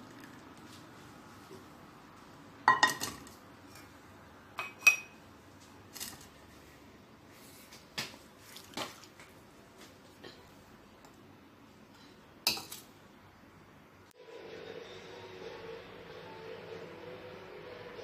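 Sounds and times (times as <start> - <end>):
metal and ceramic clinking: 2.7 - 3.2, 4.6 - 5.2.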